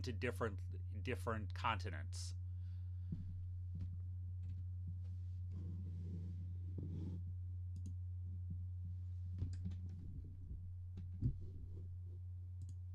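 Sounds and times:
steady low hum: 0.0s - 12.9s
computer mouse clicks: 7.7s - 8.0s, 12.6s - 12.8s.

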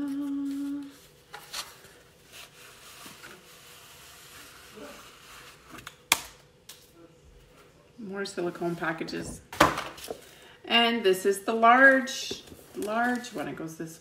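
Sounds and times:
person singing: 0.0s - 1.0s
paper rustling: 12.4s - 13.6s.

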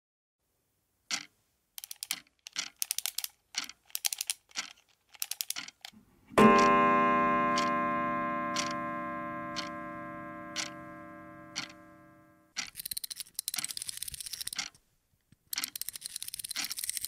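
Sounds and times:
sharp clicks: 1.1s - 6.0s, 10.6s - 10.8s, 11.6s - 11.8s, 12.5s - 17.0s
low struck ringing note: 6.4s - 12.4s.

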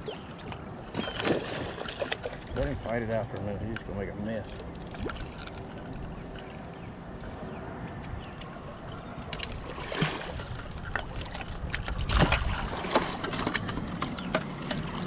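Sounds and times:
water sloshing and splashing: 0.0s - 7.5s, 8.2s - 15.0s.

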